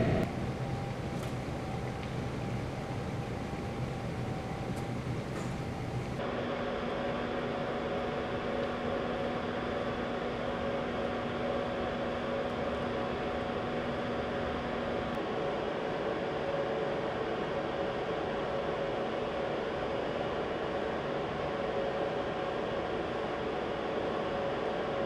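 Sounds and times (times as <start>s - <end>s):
low even hum: 0.0s - 16.4s.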